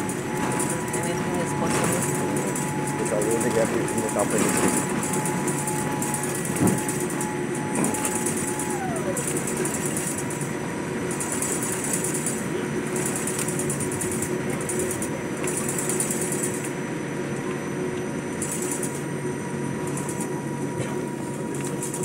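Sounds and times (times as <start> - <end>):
jet engines drone in cabin: 0.0 - 22.0.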